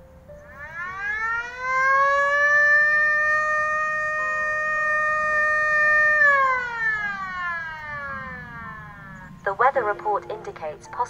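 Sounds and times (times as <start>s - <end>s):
siren wailing: 0.3s - 10.5s.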